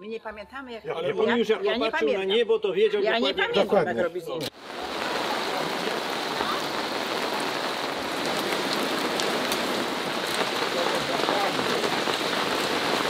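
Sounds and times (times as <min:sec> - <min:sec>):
rain falling on foliage: 0:04.5 - 0:13.0.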